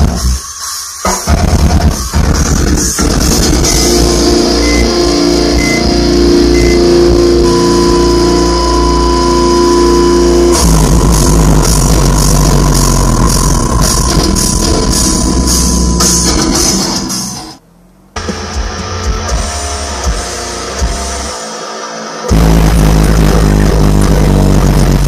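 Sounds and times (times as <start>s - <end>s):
metal music through subwoofers: 0.0s - 25.0s.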